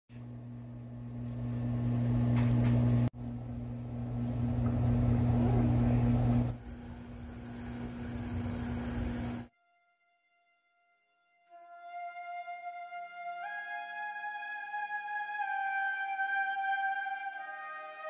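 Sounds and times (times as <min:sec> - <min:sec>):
aquarium pump humming: 0:00.1 - 0:09.5
water trickling: 0:00.2 - 0:09.4.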